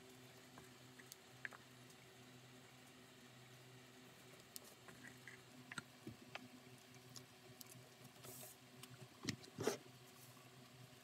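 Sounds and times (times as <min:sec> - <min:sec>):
light clicks and scratches: 0:04.2 - 0:10.7.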